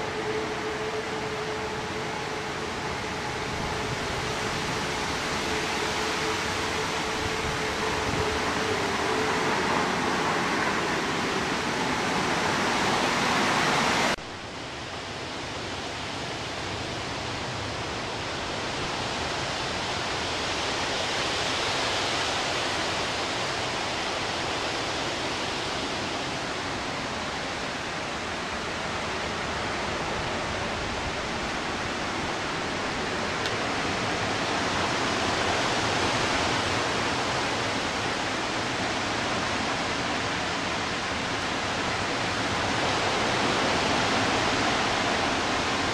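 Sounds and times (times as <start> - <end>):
wind rushing through trees: 0.0 - 45.9.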